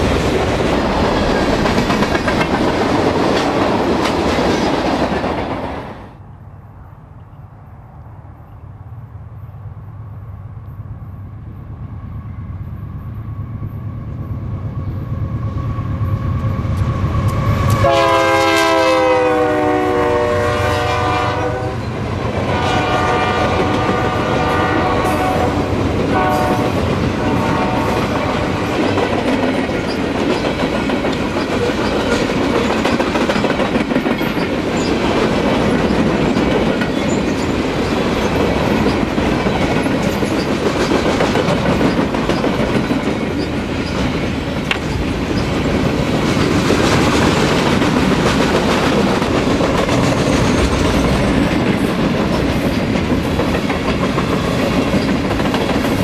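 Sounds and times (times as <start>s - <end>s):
train wheels clattering on rails: 0.0s - 6.0s, 21.8s - 56.0s
diesel locomotives rumbling: 0.0s - 56.0s
locomotive horn blast: 17.4s - 28.7s.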